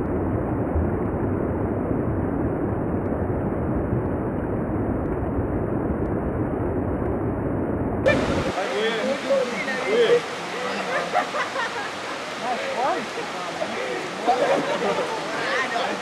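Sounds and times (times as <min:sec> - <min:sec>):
muffled waterfall rush: 0:08.0 - 0:16.0.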